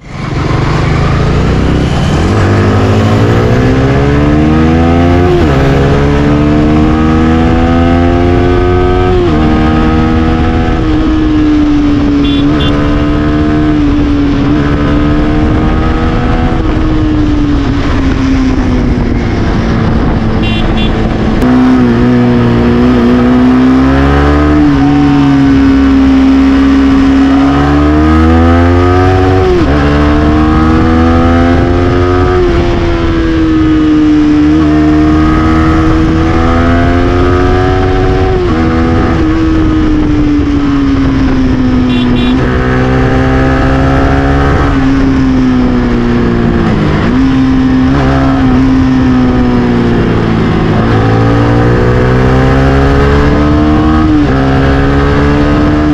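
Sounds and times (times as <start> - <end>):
motorcycle engine revving: 0.0 - 55.9
wind rushing: 13.0 - 27.4.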